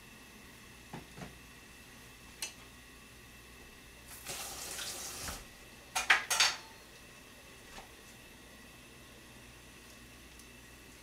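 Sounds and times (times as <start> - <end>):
kitchen tap running: 4.1 - 5.5
utensils clattering: 6.0 - 6.7.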